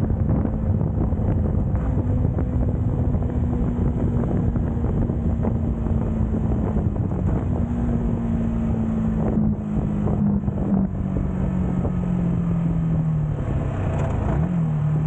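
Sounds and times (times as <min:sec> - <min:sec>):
motorcycle engine cruising: 0:00.0 - 0:15.0
wind noise on microphone: 0:00.0 - 0:15.0.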